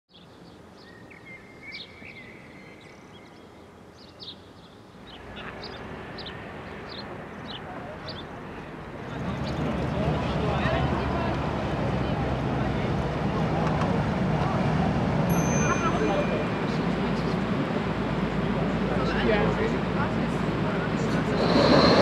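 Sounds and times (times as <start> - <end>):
small birds chirping: 0.1 - 10.1.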